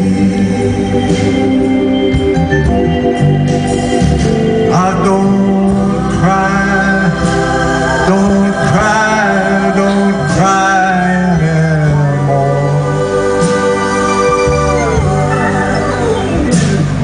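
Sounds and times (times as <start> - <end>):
organ chords: 0.0 - 17.0
sliding lead melody: 0.0 - 17.0.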